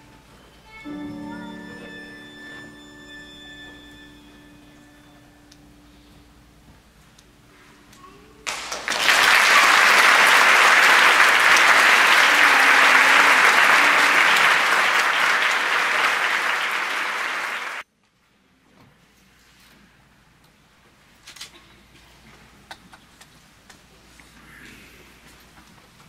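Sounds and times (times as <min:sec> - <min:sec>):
audience applauding: 0:08.4 - 0:17.8.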